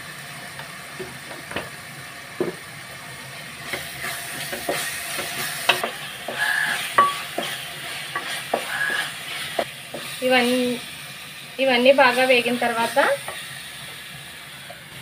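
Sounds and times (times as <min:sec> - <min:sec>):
oil frying sizzle: 0:00.0 - 0:15.0
spatula scraping metal pot: 0:03.7 - 0:09.6
spatula knocking against pot: 0:04.5 - 0:09.1.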